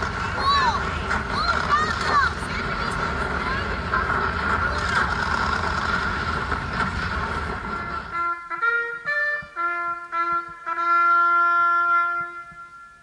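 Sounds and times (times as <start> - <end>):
rushing noise: 0.0 - 13.0
bugle call: 8.1 - 13.0.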